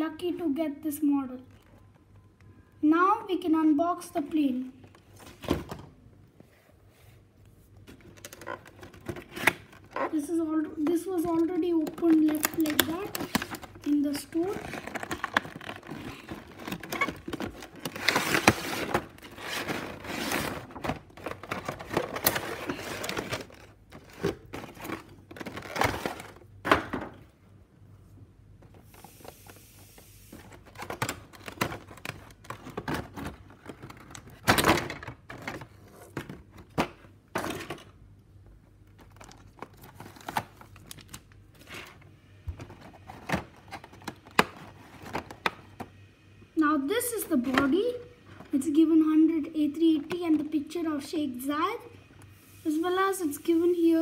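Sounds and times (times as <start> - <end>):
packaging rustling and crinkling: 7.8 - 10.2, 10.8 - 26.5, 28.6 - 37.9, 38.8 - 42.0, 42.6 - 45.9.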